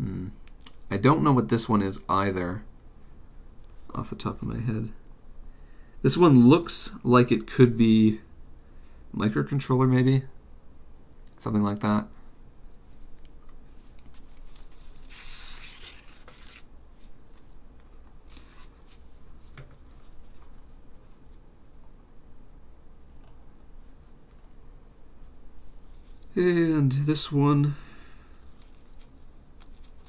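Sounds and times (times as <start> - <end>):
plastic gloves rustling: 12.7 - 21.8, 25.1 - 26.4, 28.2 - 30.0.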